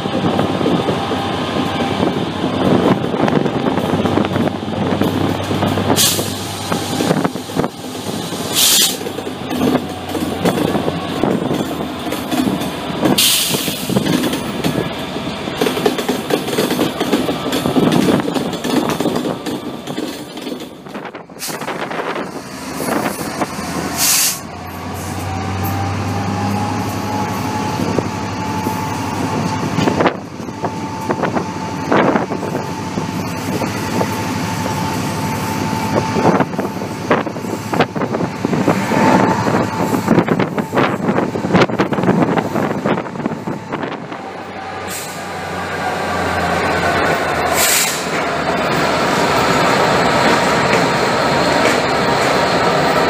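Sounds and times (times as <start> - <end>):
train running noise: 0.0 - 53.0
wheels clattering on track: 1.8 - 25.9, 44.6 - 53.0
high whine: 25.8 - 44.7.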